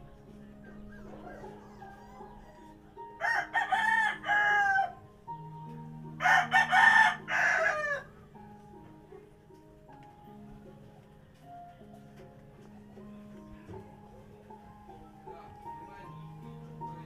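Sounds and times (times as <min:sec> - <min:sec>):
soft background music: 0:00.0 - 0:17.0
rooster crowing: 0:00.9 - 0:05.1, 0:06.2 - 0:08.1.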